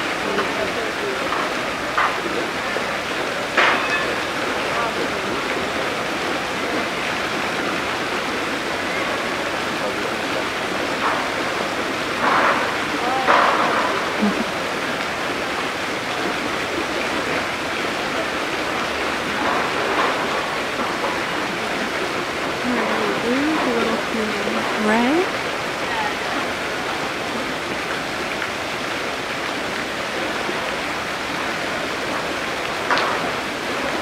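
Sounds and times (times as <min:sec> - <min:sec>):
distant voices: 0:00.0 - 0:34.0
running water rushing: 0:00.0 - 0:34.0.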